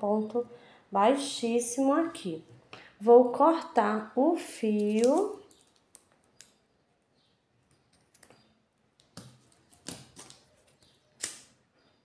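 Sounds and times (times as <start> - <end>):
hands handling scissors and cord: 4.8 - 6.5.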